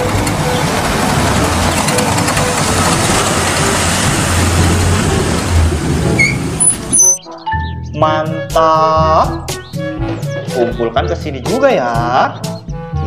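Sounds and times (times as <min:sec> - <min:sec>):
vehicle engine and road noise: 0:00.0 - 0:07.8.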